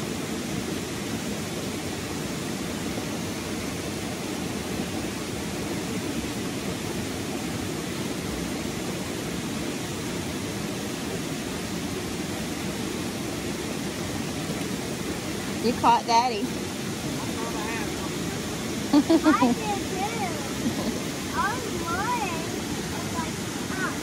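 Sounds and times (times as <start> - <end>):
stream rushing into a pool: 0.0 - 24.0.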